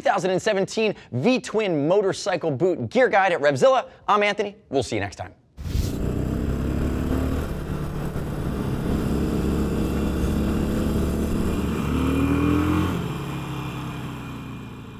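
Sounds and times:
motorcycle engine at speed: 0:05.7 - 0:14.9.

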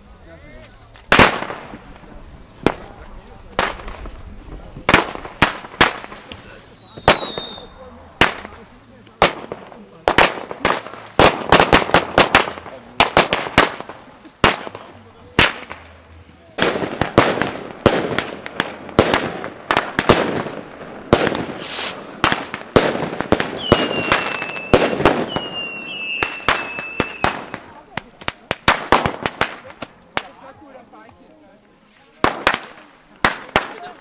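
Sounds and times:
firework bangs with echo: 0:01.1 - 0:04.2, 0:04.8 - 0:15.8, 0:16.6 - 0:30.4, 0:32.2 - 0:34.0
whistling fireworks: 0:04.9 - 0:08.5, 0:21.1 - 0:27.6.

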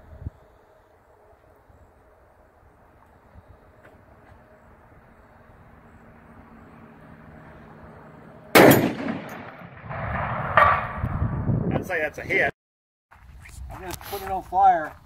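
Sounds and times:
rifle shot with rolling echo: 0:08.5 - 0:11.1.

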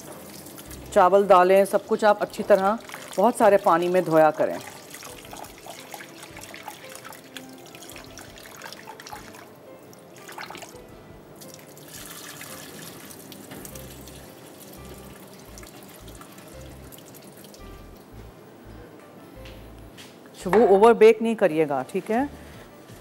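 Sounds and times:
water sloshing rice rinsing: 0:02.3 - 0:10.8, 0:11.4 - 0:17.7.

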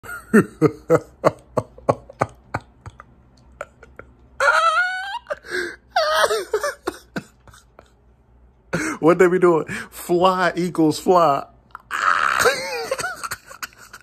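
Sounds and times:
man laughing hard: 0:00.0 - 0:08.0, 0:11.9 - 0:14.0.

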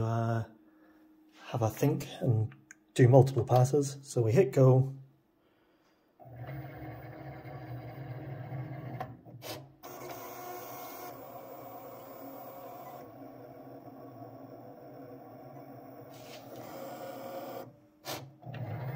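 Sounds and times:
cutting machine motors running: 0:06.2 - 0:18.9.

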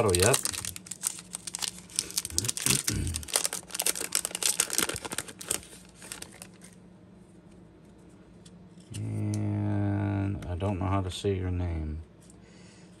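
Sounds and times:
wrapper crinkling and tearing: 0:00.0 - 0:06.8.

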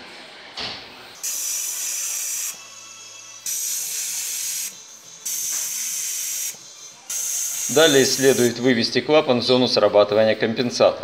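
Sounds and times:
compressed air tester hissing: 0:01.2 - 0:08.7.

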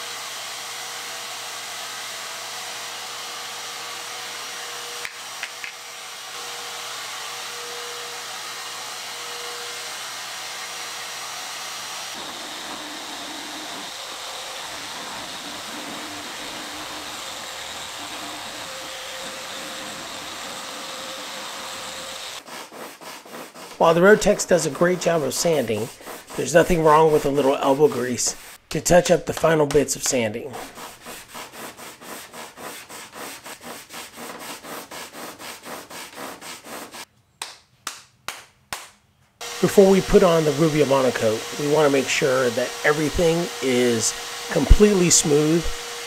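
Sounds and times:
orbital sander whirring: 0:00.0 - 0:28.6, 0:39.4 - 0:46.0
sander clicks: 0:05.0 - 0:05.8.

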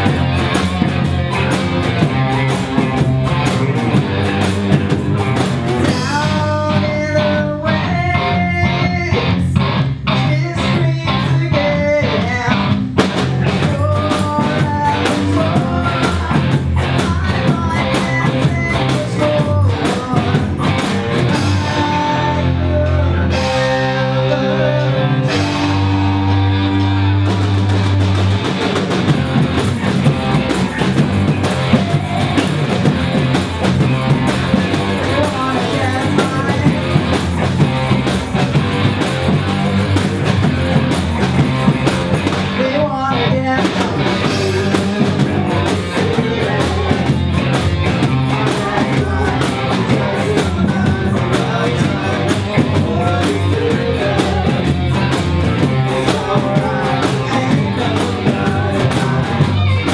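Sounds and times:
snare drums: 0:00.0 - 0:06.2, 0:26.6 - 0:42.6
bass drums pounding: 0:00.0 - 0:07.3, 0:12.3 - 0:59.9
bass guitar: 0:00.0 - 0:59.9
electric guitars: 0:00.0 - 0:59.9
person singing: 0:02.4 - 0:27.3, 0:29.4 - 0:40.1, 0:40.7 - 0:59.9.

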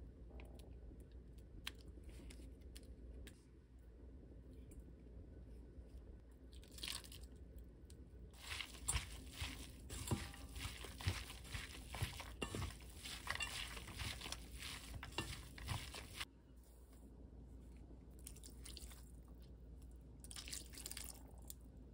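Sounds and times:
hands kneading minced meat: 0:08.3 - 0:16.3.

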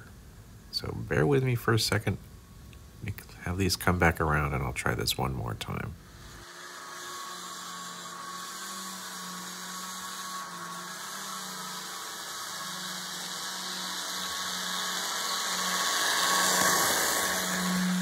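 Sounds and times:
model train whirring hum: 0:06.0 - 0:18.0.

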